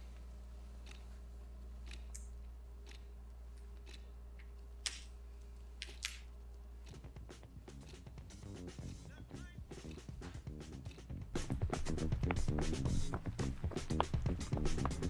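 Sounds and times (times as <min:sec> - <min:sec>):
faint room hum: 0:00.0 - 0:15.0
music with deep beat: 0:06.9 - 0:15.0.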